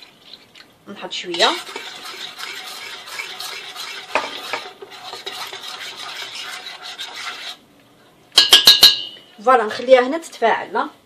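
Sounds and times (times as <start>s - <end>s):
metal spoon stirring in bowl: 1.2s - 7.6s.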